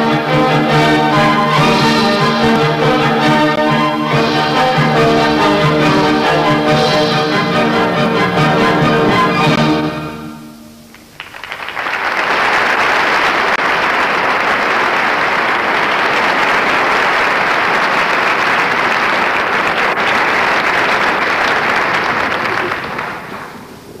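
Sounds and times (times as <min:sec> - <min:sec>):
audience applauding: 0:10.8 - 0:24.0.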